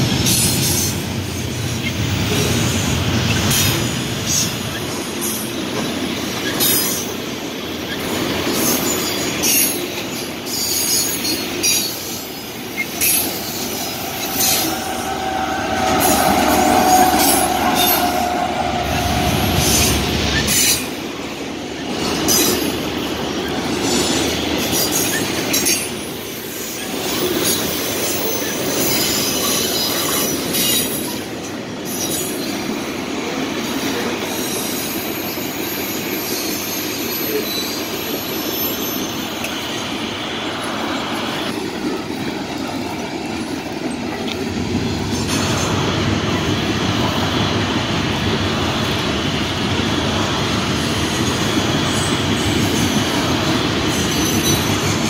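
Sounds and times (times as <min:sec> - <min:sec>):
train wheels rumbling and clacking: 0:00.0 - 0:55.0
high wheel squeal: 0:07.8 - 0:21.0.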